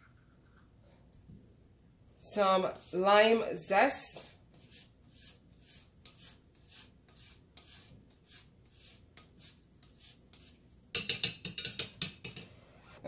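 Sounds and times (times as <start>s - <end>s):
grater scraping rind: 4.2s - 10.6s.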